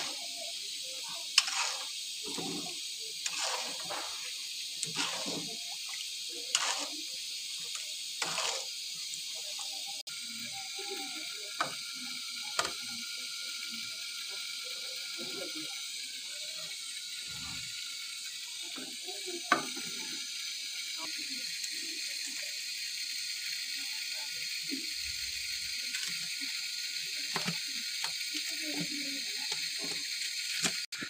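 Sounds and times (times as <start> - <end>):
gas burner hissing: 0.0 - 31.0
metal spoon scraping a pan: 1.2 - 5.5, 6.5 - 7.0, 7.7 - 8.8.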